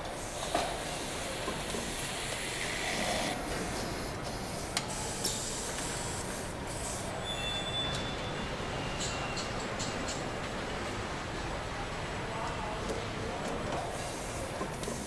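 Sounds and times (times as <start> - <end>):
machinery hissing: 0.1 - 7.4.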